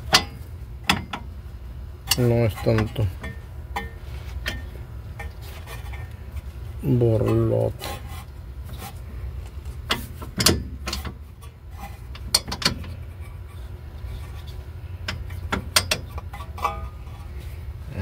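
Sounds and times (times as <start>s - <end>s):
metal brake parts clicking: 9.8s - 13.0s, 15.0s - 17.2s.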